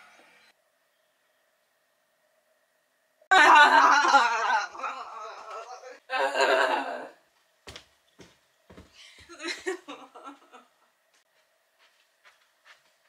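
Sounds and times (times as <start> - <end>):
faint steady hum: 0.0 - 13.0
voice: 3.3 - 7.2.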